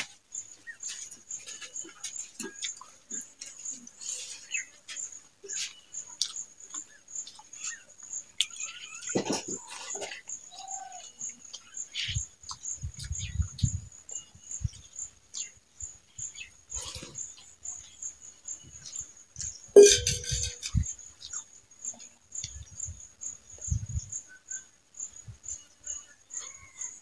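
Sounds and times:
wet mouth clicks and chewing: 5.5 - 7.8, 8.4 - 10.4, 12.4 - 13.7
high repeating chirp: 19.8 - 20.7.

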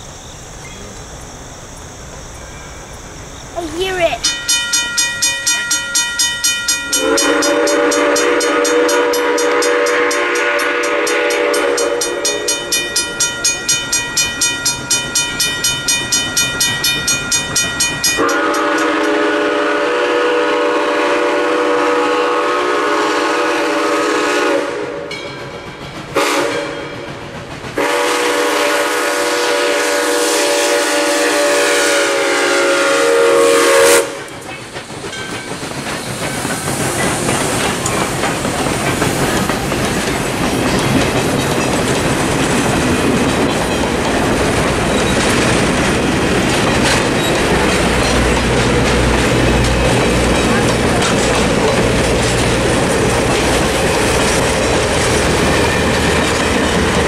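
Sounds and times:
mechanical crossing bell ringing: 4.2 - 7.6, 12.0 - 18.9
steam locomotive chime whistle: 4.2 - 27.2, 27.8 - 34.4.

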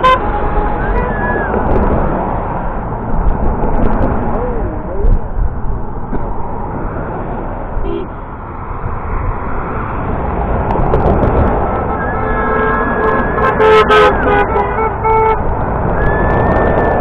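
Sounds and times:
vehicle horns honking: 0.0 - 1.5, 7.8 - 8.2, 11.8 - 15.4
road traffic passing: 0.0 - 17.0.

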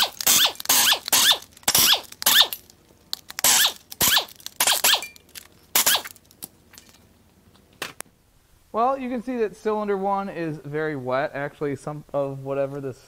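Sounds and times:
air wrench bursts with falling whine: 0.0 - 2.6, 3.4 - 5.2, 5.8 - 6.1.

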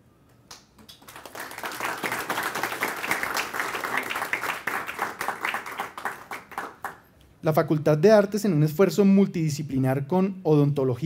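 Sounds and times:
audience applause: 0.8 - 7.0.

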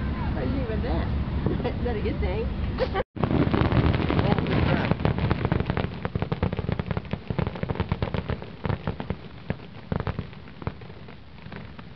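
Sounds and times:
fireworks crackling: 3.2 - 11.9.

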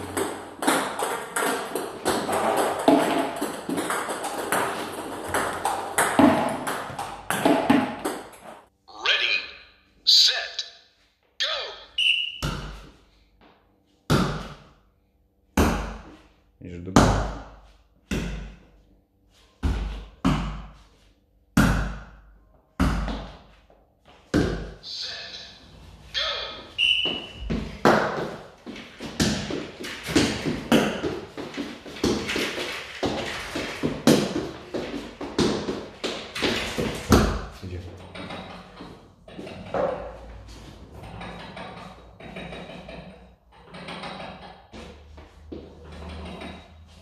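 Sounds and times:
table tennis ball pinging: 0.0 - 8.6.

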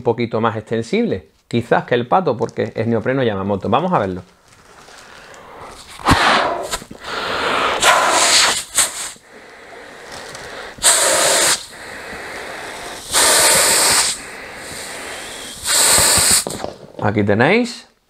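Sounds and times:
man breathing: 4.8 - 16.6
man blowing hard into sleeve: 5.5 - 16.8.

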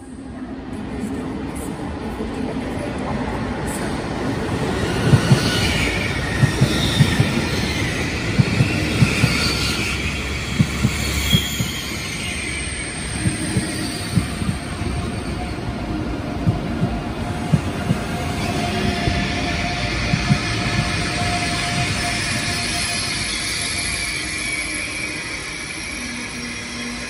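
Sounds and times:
low train rumble: 0.0 - 27.0
high wheel squeals: 5.0 - 15.6, 18.3 - 27.0
train wheels knocking over rail joints: 6.3 - 12.0, 13.2 - 14.8, 16.4 - 22.6.

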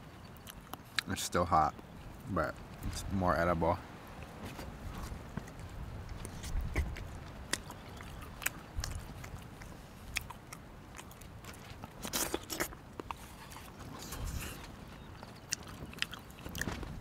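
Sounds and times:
person chewing: 0.3 - 1.1, 4.2 - 16.9.

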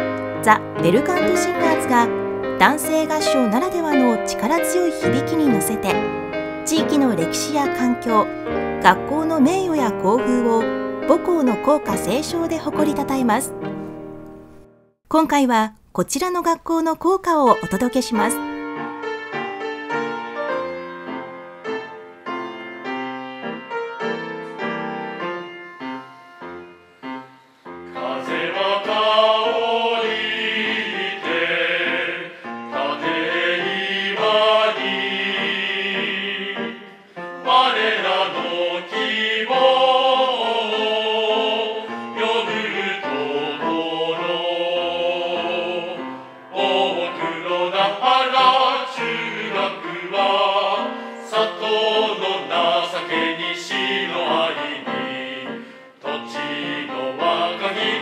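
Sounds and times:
piano accompaniment: 0.0 - 15.0, 17.5 - 58.0
male voice choir singing: 28.0 - 58.0.

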